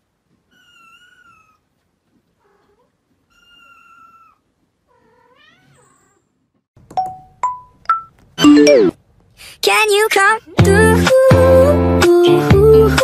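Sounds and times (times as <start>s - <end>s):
short plinking tones: 6.9s - 8.9s.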